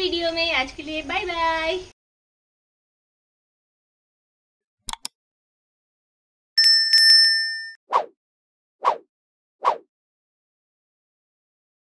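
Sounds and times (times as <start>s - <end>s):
notification bell dinging: 6.6s - 7.8s.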